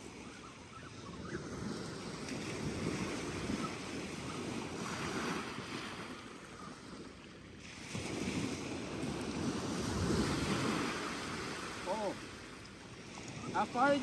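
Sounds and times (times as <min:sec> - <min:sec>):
wind buffeting microphone: 0:00.9 - 0:06.4
waves washing on gravel beach: 0:07.6 - 0:12.5.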